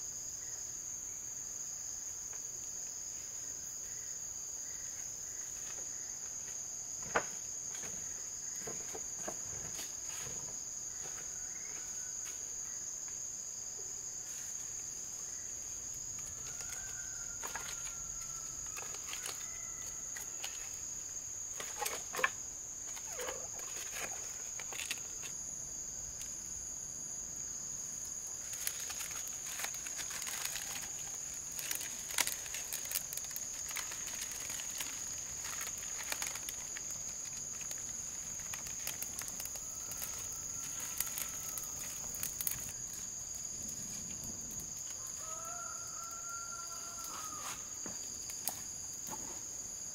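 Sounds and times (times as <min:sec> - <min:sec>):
crickets droning: 0:00.0 - 0:49.9
bamboo kindling crackling: 0:14.1 - 0:26.6, 0:27.5 - 0:49.4
bamboo and wood knocking: 0:16.2 - 0:18.0, 0:21.6 - 0:25.3.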